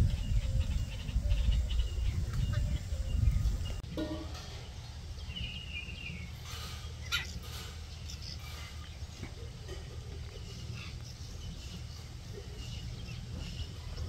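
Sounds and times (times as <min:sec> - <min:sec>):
steady low rumble: 0:00.0 - 0:14.0
babblers chirping: 0:06.3 - 0:14.0.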